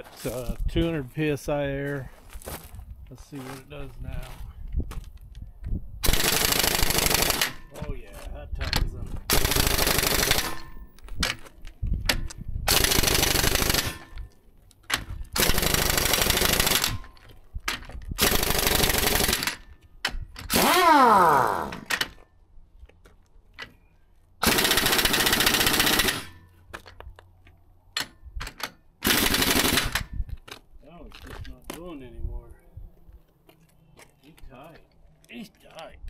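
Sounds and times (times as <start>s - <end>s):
air impact wrench hammering: 20.4s - 21.9s.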